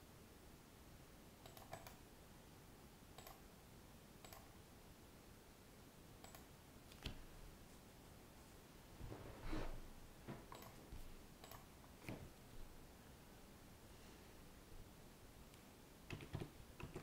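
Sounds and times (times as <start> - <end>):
low hiss: 0.0 - 17.0
faint computer mouse clicks: 1.4 - 2.0, 3.2 - 3.4, 4.2 - 4.5, 6.2 - 7.2, 10.5 - 10.8, 11.4 - 12.2.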